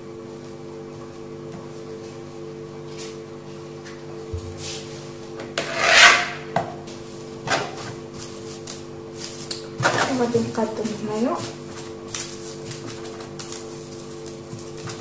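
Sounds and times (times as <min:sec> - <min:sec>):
cling film crinkling: 0:11.8 - 0:15.0.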